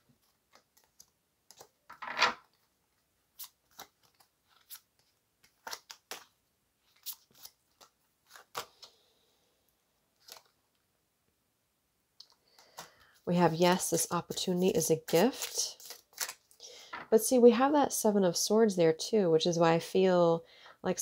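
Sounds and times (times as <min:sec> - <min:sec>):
cards being shuffled: 0:00.2 - 0:02.7, 0:03.3 - 0:09.0, 0:10.2 - 0:10.6, 0:14.3 - 0:16.6.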